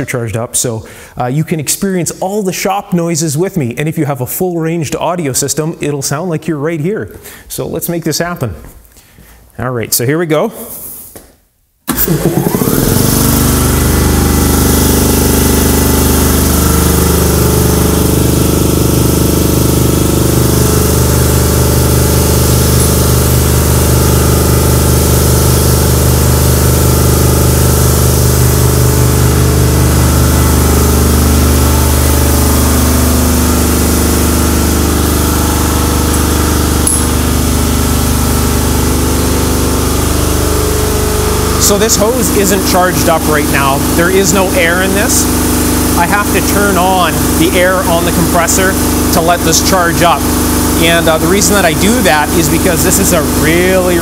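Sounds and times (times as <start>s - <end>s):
air compressor running: 0.8s - 1.2s, 11.9s - 54.0s.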